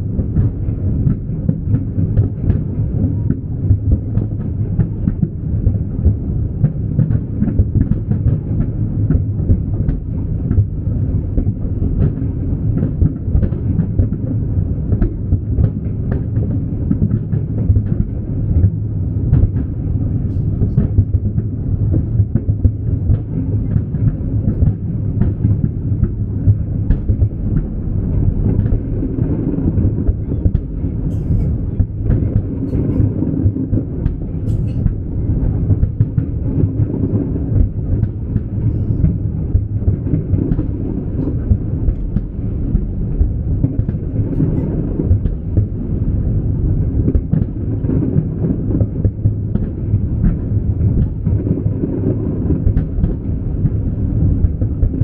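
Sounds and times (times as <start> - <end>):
fireworks rumble of shell bursts: 0.1 - 55.0
fireworks cracks and pops: 0.2 - 46.3, 46.9 - 55.0.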